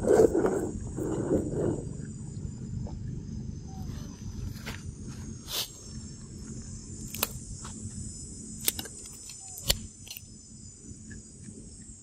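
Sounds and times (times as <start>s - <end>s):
low rumble: 0.0s - 8.6s
insects buzzing: 0.0s - 12.0s
sharp clicks: 7.1s - 7.4s, 8.6s - 10.3s.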